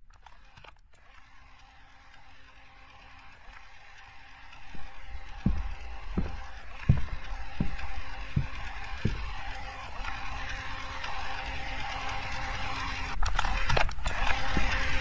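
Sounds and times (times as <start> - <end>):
deep kick drum thumps: 4.8 - 9.4.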